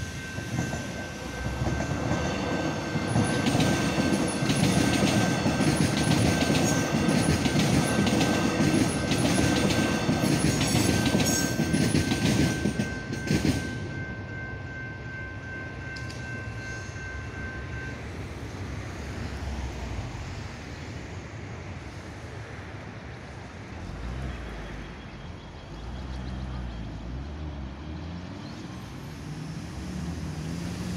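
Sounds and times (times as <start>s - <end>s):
level crossing warning bell: 0.0s - 19.5s
cars idling and pulling away: 23.7s - 30.9s.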